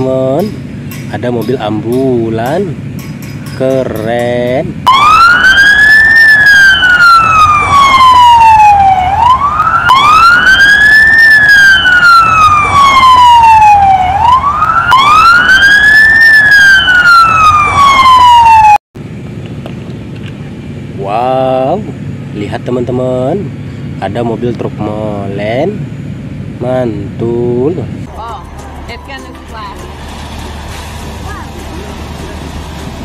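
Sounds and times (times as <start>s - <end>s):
ambulance siren wailing: 4.8s - 18.8s.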